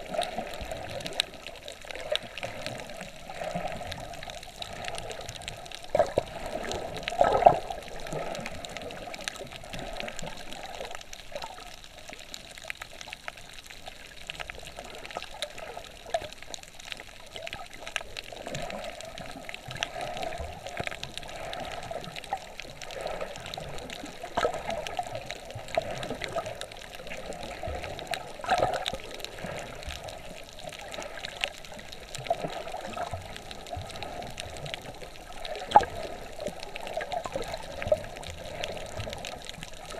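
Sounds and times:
muffled underwater water movement: 0.0s - 39.9s
water gurgling surges: 0.0s - 39.9s.

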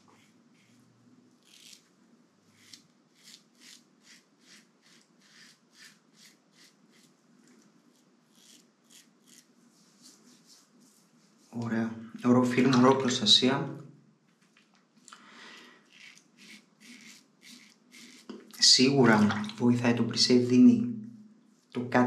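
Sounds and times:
razor scratching stubble: 0.0s - 1.9s, 2.6s - 10.6s, 15.8s - 18.5s.

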